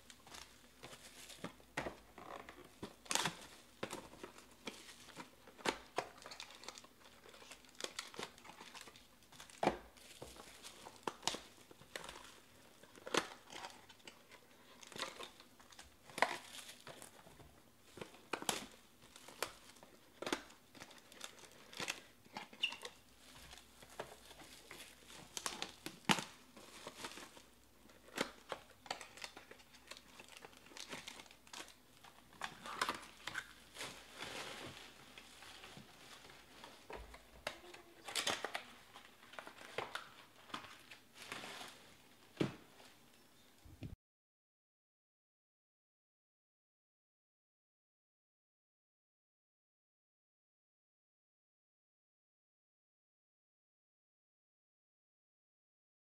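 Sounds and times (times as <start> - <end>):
foil card packs rustling: 0.0 - 42.8
plastic shrink wrap crinkling: 0.0 - 43.0.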